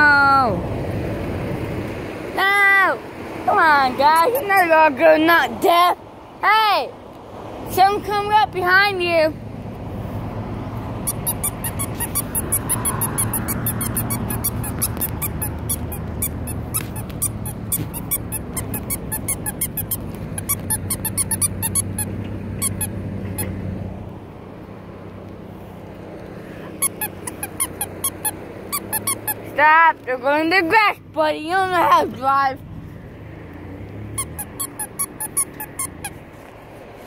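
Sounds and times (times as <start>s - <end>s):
low engine hum: 0.0s - 37.0s
high-pitched squeaks: 11.0s - 23.6s, 26.6s - 29.6s, 34.1s - 36.5s.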